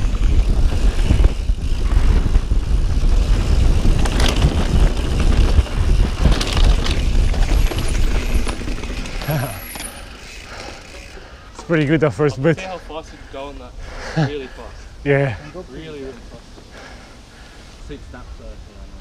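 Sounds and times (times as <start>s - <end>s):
wind rumble on microphone: 0.0s - 9.0s
bike tyre roar: 0.0s - 11.5s
bike rattling over rough ground: 0.0s - 12.6s.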